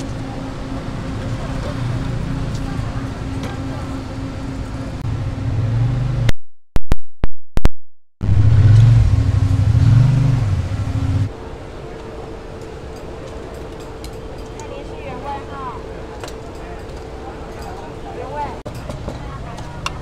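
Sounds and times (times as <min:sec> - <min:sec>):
low mechanical hum: 0:00.0 - 0:06.3, 0:08.2 - 0:20.0.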